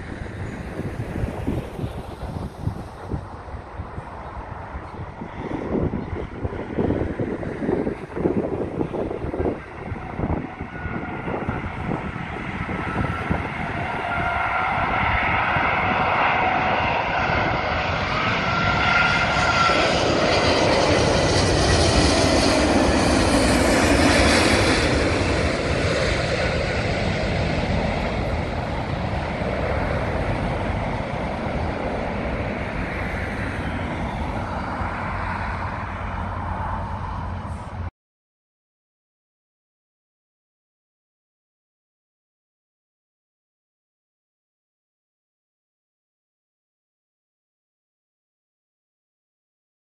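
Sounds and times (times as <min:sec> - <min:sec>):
jet airliner passing overhead: 0:00.0 - 0:37.9.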